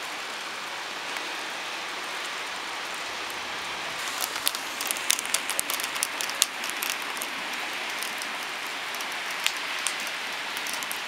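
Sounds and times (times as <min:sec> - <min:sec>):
heavy rain hissing: 0:00.0 - 0:11.0
raindrops clicking close by: 0:04.0 - 0:11.0.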